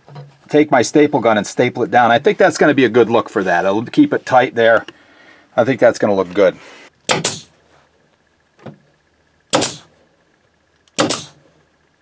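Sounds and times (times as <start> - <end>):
staple gun firing: 7.1 - 7.5, 9.5 - 9.8, 10.9 - 11.4.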